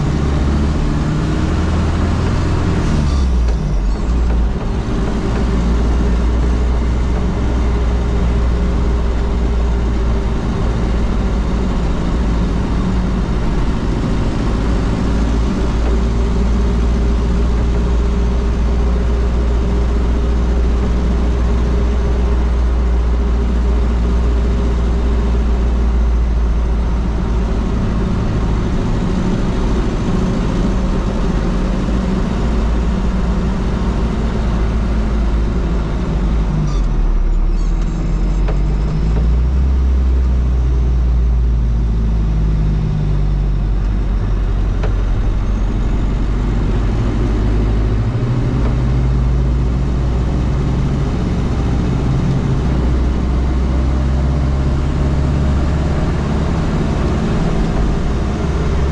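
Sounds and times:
diesel engine running: 0:00.0 - 0:58.9
road noise: 0:00.0 - 0:58.9.

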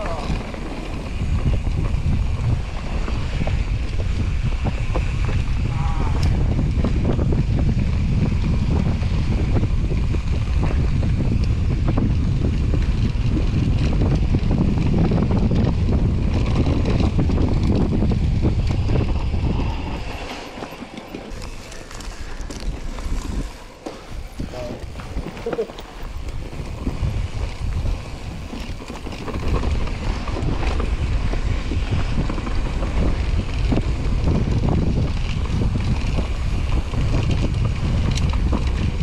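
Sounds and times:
bike frame rattling: 0:00.0 - 0:39.0
bike tyres rumbling over rocks: 0:00.0 - 0:39.0
wind buffeting microphone: 0:00.0 - 0:39.0.

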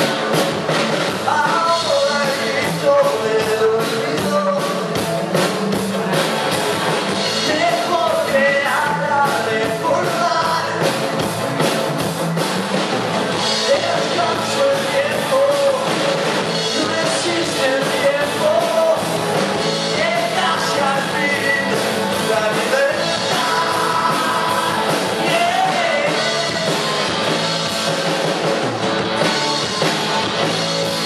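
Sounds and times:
acoustic and electric guitars: 0:00.0 - 0:31.0
drum beat: 0:00.0 - 0:31.0
man singing lead: 0:01.0 - 0:06.2, 0:07.2 - 0:11.3, 0:13.3 - 0:27.8.

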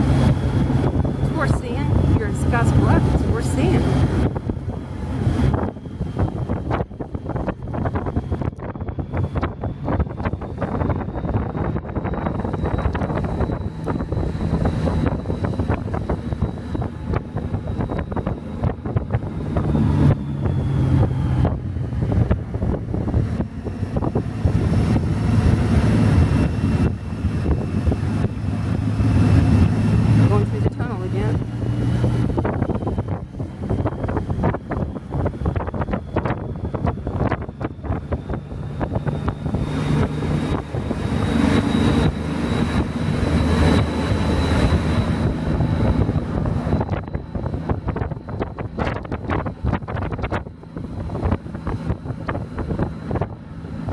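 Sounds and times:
motorcycle engine running: 0:00.0 - 0:53.9
wind buffeting microphone: 0:00.0 - 0:53.9
thin high whine: 0:37.6 - 0:51.4.

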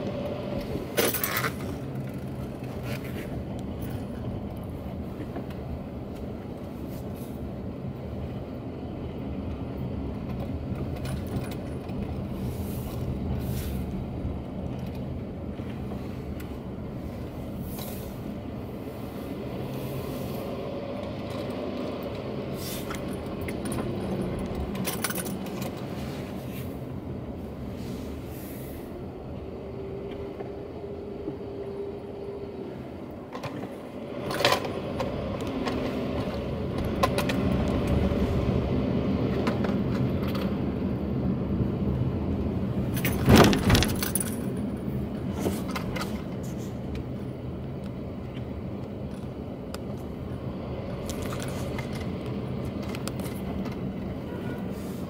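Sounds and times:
car engine and road hum: 0:00.0 - 0:55.0.

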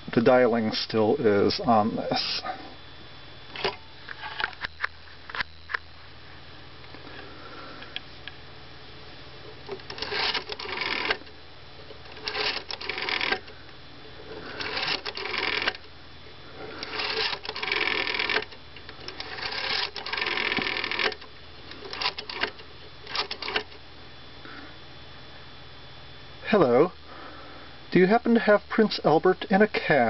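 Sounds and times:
rotary phone dial whirring: 0:03.5 - 0:05.8, 0:09.4 - 0:16.0, 0:16.6 - 0:23.8.

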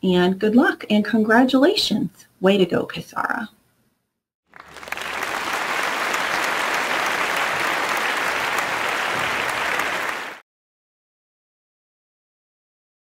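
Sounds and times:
crowd applause: 0:04.5 - 0:10.4.

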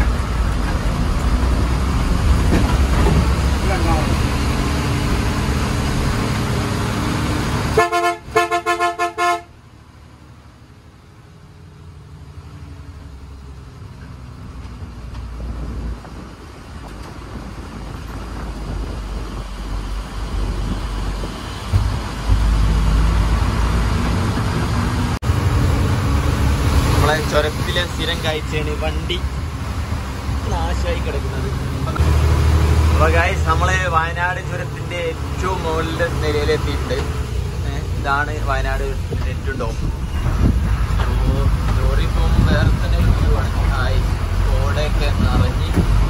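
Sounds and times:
diesel engine drone: 0:00.0 - 0:46.0
lorry horn blasts: 0:07.7 - 0:09.6.

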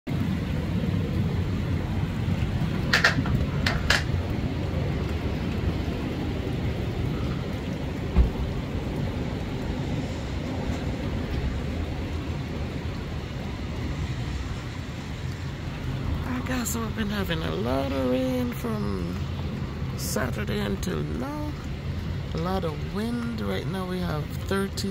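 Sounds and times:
rain: 0:00.0 - 0:24.9
wind buffeting microphone: 0:00.1 - 0:24.9
thump: 0:08.2 - 0:08.4.

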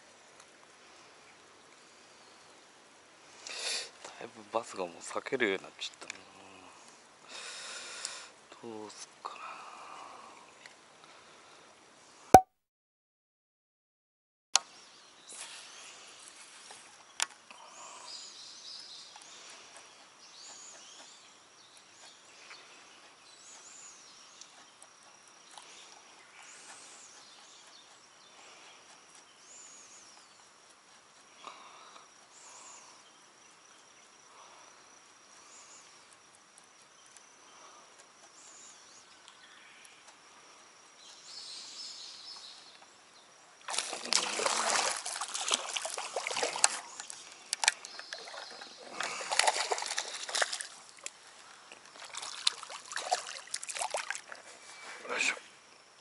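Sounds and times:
small birds chirping: 0:14.6 - 0:56.0
fish splashing in water: 0:43.6 - 0:54.5.

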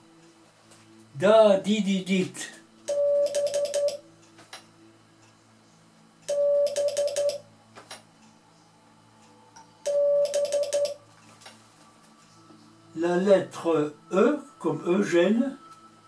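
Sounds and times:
morse code beeps: 0:02.9 - 0:04.0, 0:06.3 - 0:07.4, 0:09.9 - 0:11.0.

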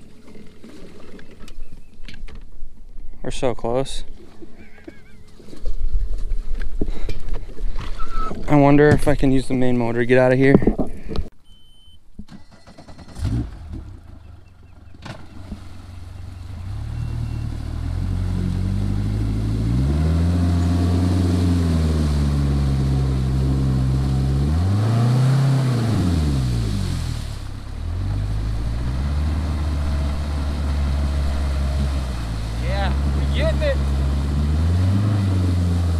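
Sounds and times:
outboard motor revving: 0:12.6 - 0:35.9.

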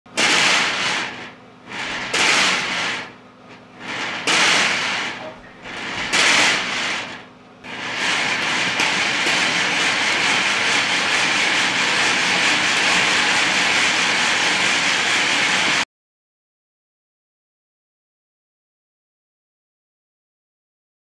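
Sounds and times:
metal slinky coils rattling: 0:00.2 - 0:03.1, 0:03.8 - 0:15.8.

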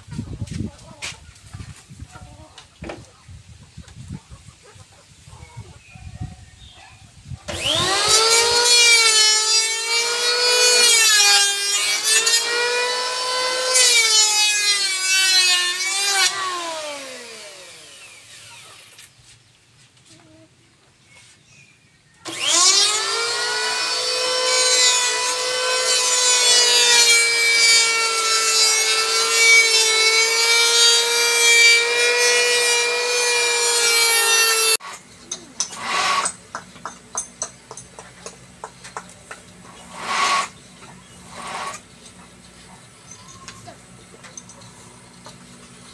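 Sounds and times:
electric planer shaving wood: 0:07.5 - 0:18.9, 0:22.3 - 0:36.4.

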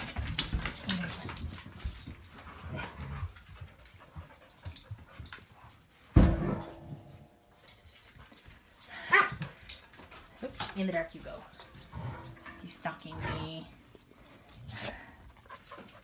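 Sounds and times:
dog panting: 0:00.0 - 0:06.1, 0:11.2 - 0:16.0.

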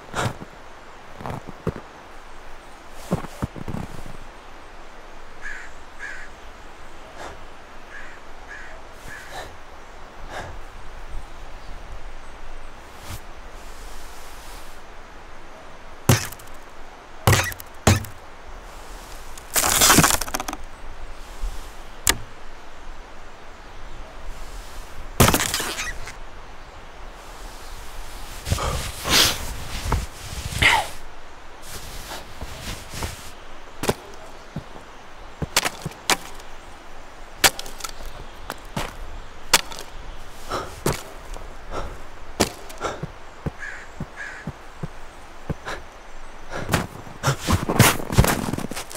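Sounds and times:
ice cracking and snapping: 0:16.1 - 0:16.6, 0:19.3 - 0:20.6, 0:25.2 - 0:26.1, 0:37.4 - 0:38.2
sharp knocks and cracks: 0:16.1 - 0:16.6, 0:17.3 - 0:18.2, 0:35.4 - 0:36.5.

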